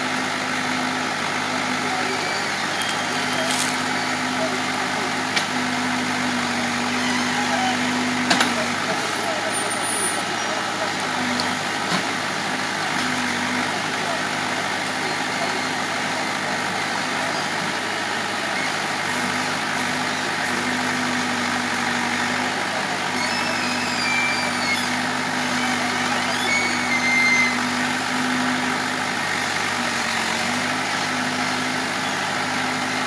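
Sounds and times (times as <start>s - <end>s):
diesel engine running: 0.0s - 33.0s
short high squeals: 2.0s - 4.4s, 6.8s - 8.0s, 23.0s - 27.9s.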